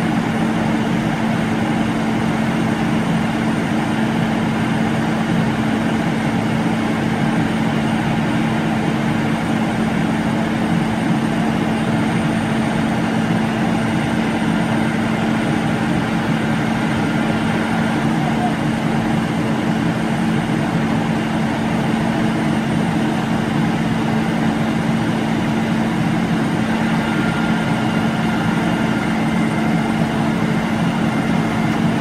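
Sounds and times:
diesel engine running steadily: 0.0 - 32.0.

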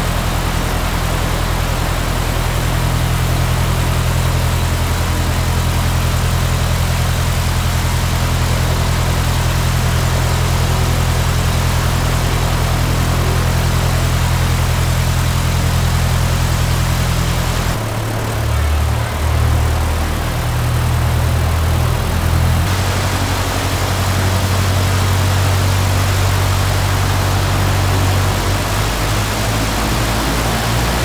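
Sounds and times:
aircraft engine idling: 0.0 - 31.0.

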